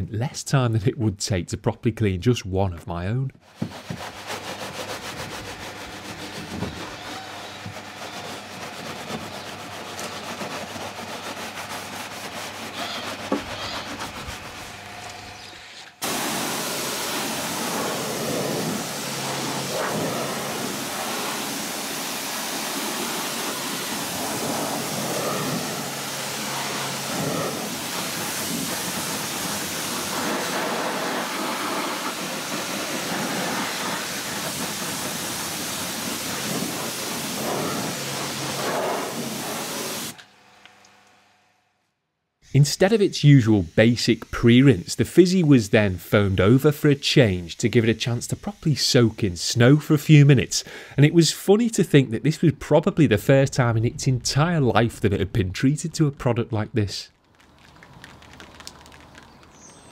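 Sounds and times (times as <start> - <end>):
wash mitt rubbing on tyre: 3.4 - 40.2
pressure washer jet hissing: 3.8 - 40.2, 42.5 - 49.9.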